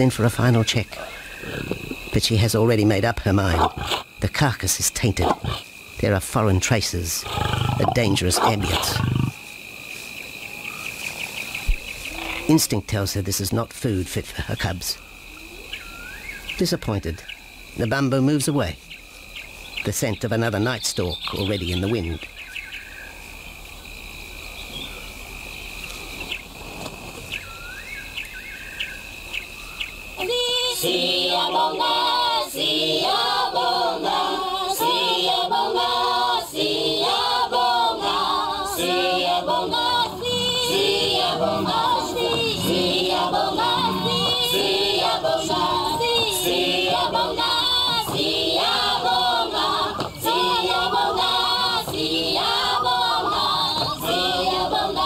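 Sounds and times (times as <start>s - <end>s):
high insect trill: 0.0s - 55.0s
insect chirps: 0.0s - 55.0s
choir singing: 30.2s - 55.0s.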